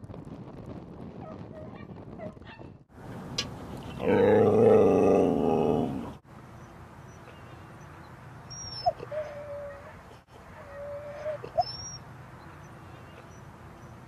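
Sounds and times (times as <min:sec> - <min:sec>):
dog whining: 0:08.5 - 0:10.0, 0:10.6 - 0:12.0
dog pitched call: 0:10.6 - 0:12.0.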